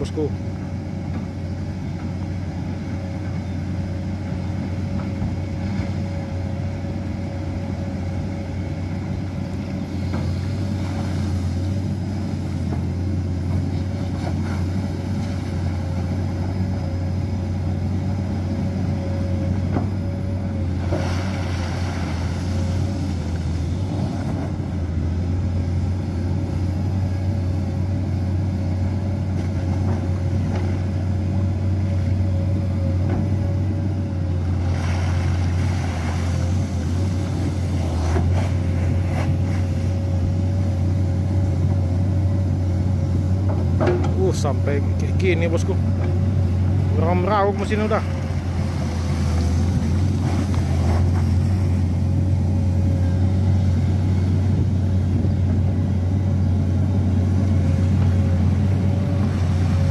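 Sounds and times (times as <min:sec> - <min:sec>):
excavator diesel engine under load: 0:00.0 - 0:59.9.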